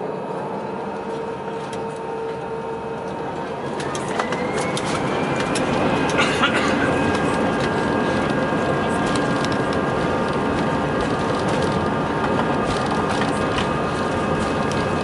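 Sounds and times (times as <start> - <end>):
jet engines whining: 0.0 - 15.0
wheels rattling on runway: 3.1 - 15.0.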